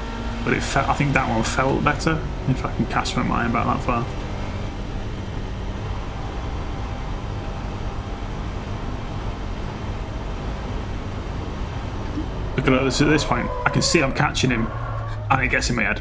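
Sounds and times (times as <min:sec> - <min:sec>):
race car engine running: 0:00.0 - 0:16.0
road and wind noise: 0:00.0 - 0:16.0.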